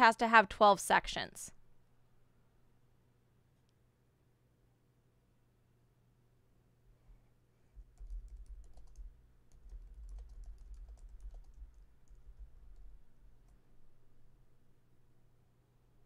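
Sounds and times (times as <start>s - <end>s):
low steady hum: 0.0s - 16.0s
keyboard typing: 7.8s - 13.7s.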